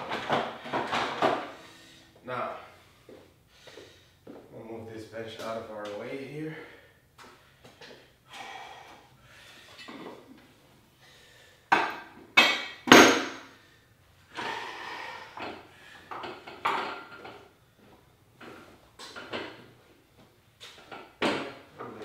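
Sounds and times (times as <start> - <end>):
sharp knocks: 11.8 - 13.4.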